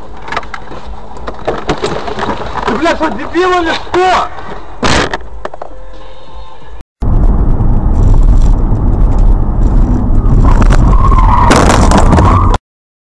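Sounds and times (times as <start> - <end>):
road rumble inside car: 7.0 - 12.5.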